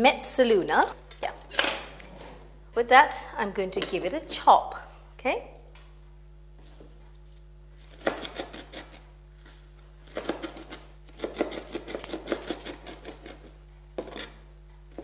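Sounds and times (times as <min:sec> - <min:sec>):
blade chopping on a board: 0:07.9 - 0:09.0, 0:10.1 - 0:14.3.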